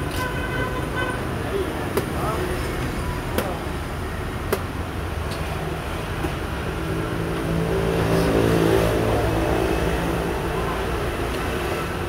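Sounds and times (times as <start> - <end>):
street background noise: 0.0 - 12.0
vehicle engine passing by: 6.9 - 11.0.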